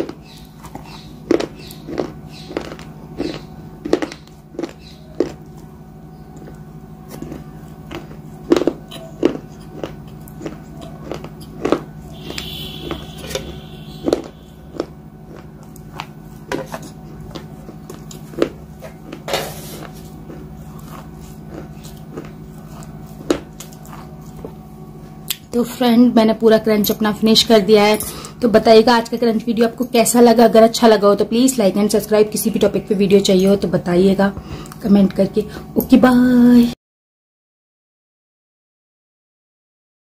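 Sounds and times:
crunchy snack chewing: 0.0s - 25.4s
low steady hum: 0.0s - 36.8s.

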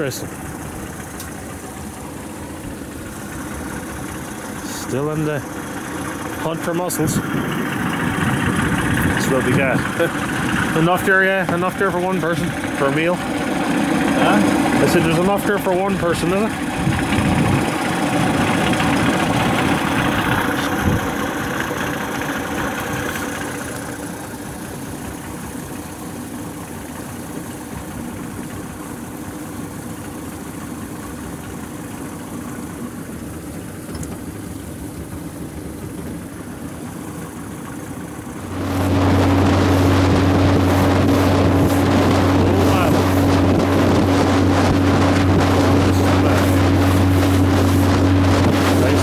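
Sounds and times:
motorboat engine: 0.0s - 49.0s.

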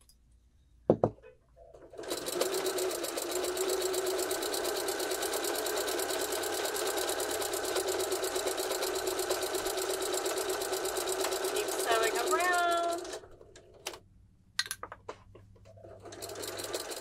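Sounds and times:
sewing machine stitching: 1.8s - 13.4s, 15.8s - 17.0s.

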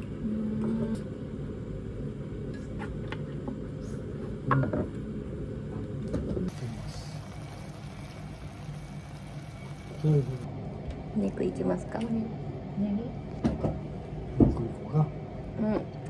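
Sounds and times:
food simmering in a pot: 6.4s - 10.5s.

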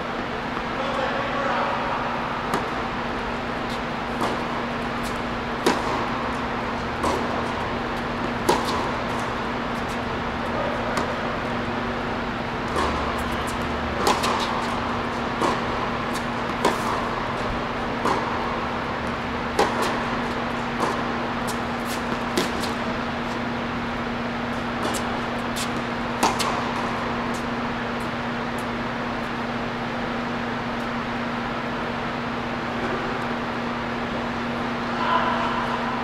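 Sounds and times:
steady low hum: 0.0s - 36.0s
tennis balls struck by rackets: 2.4s - 31.4s.

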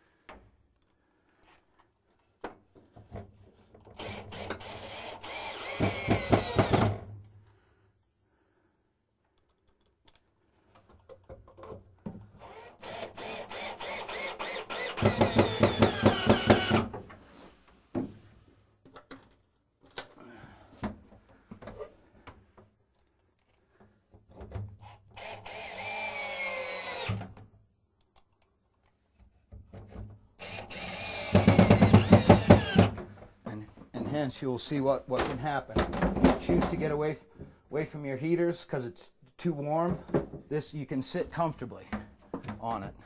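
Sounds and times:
cordless drill driving screws: 3.9s - 7.0s, 12.4s - 16.9s, 24.8s - 27.2s, 30.4s - 33.0s.

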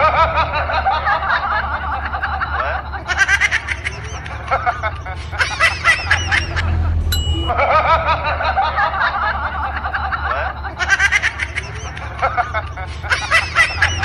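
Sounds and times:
low hum: 0.0s - 14.0s
person tittering laughter: 1.9s - 14.0s.

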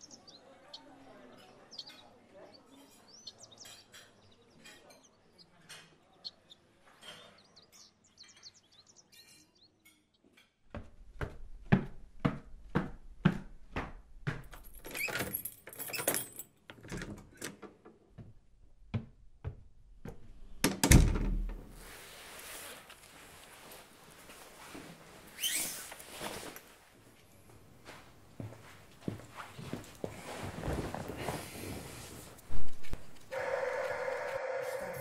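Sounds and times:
footsteps climbing stairs: 10.7s - 15.6s, 17.0s - 21.8s, 27.8s - 31.9s
door thud: 20.6s - 21.8s.

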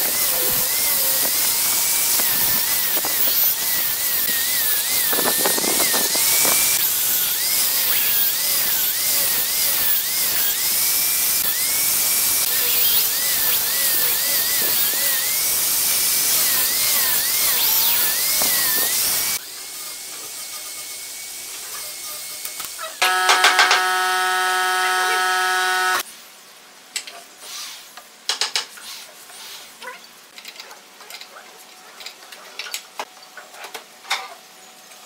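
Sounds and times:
angle grinder sanding wood: 0.0s - 26.0s.

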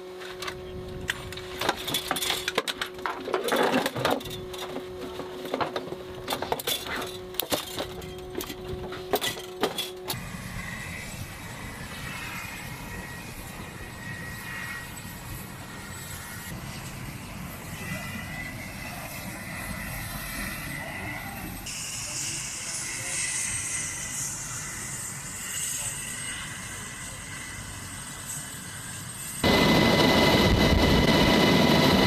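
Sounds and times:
helicopter running with faint whine: 0.0s - 32.0s
steady hum: 29.4s - 32.0s.

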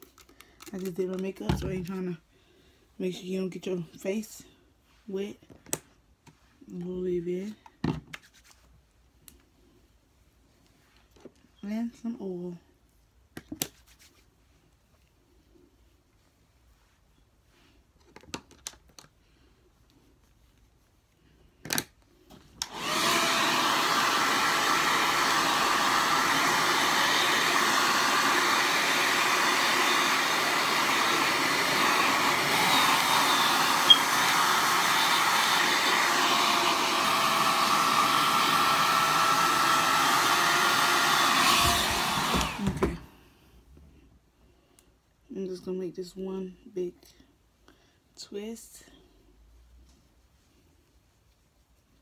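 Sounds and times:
hair dryer blowing: 22.6s - 43.2s.

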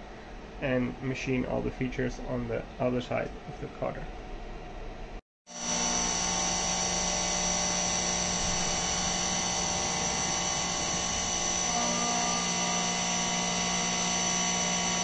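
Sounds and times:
milling machine whine: 5.5s - 15.0s.

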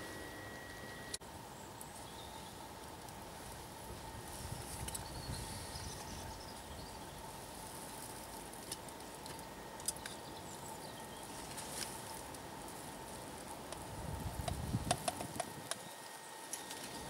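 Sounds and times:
thin steady tone: 0.0s - 1.2s
faint high chirps: 0.0s - 2.6s
faint steady hiss: 0.0s - 17.0s.

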